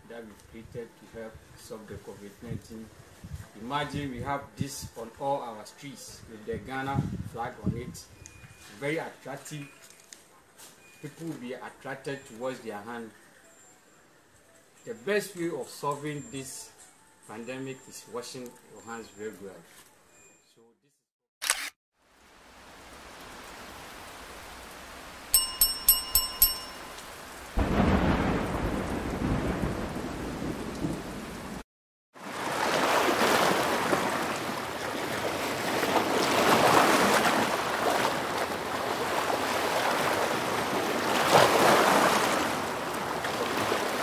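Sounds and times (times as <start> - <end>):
bright pings: 25.4 - 27.4.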